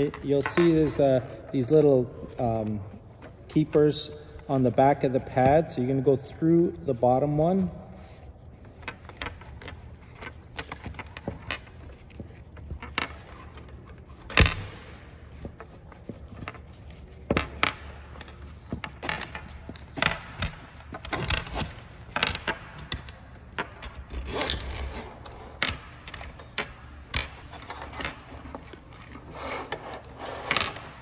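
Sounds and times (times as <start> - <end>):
nylon strap scraping and rubbing: 24.0 - 25.6, 27.3 - 30.8.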